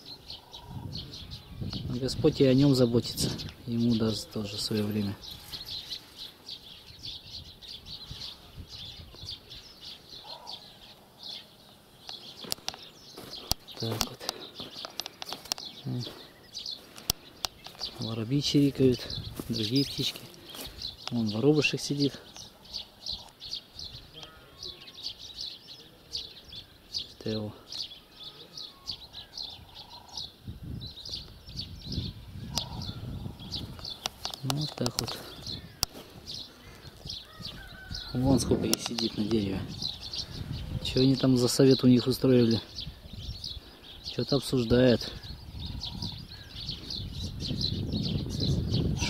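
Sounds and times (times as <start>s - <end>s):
sparrows chirping: 0.0s - 49.0s.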